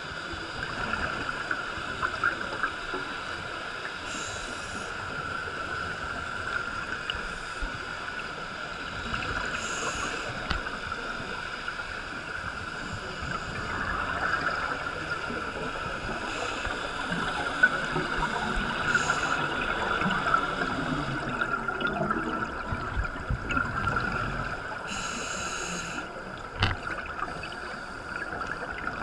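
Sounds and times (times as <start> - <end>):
underwater hiss with crackling: 0.2 - 29.0
scuba regulator breathing: 4.1 - 5.0, 9.5 - 10.5, 18.2 - 19.6, 24.8 - 26.1.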